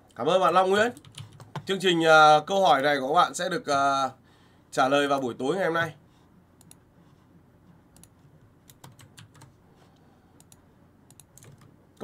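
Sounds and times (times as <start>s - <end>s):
typing on computer keyboard: 0.9s - 1.7s, 8.0s - 9.5s, 10.4s - 11.7s.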